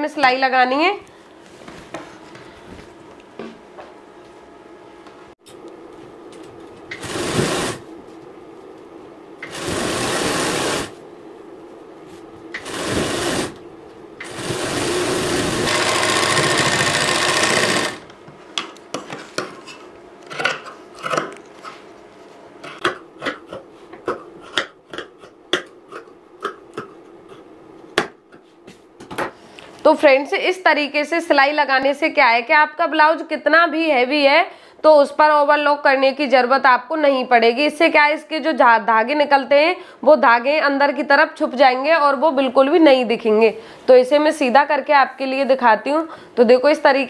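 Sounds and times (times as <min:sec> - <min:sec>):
sewing machine stitching: 0:06.9 - 0:07.8, 0:09.4 - 0:10.9, 0:12.6 - 0:13.6, 0:14.2 - 0:18.1.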